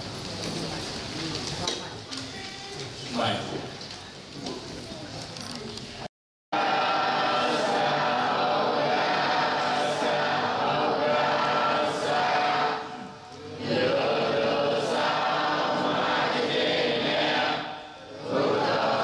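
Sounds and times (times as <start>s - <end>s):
voices chanting in unison: 6.6s - 19.0s.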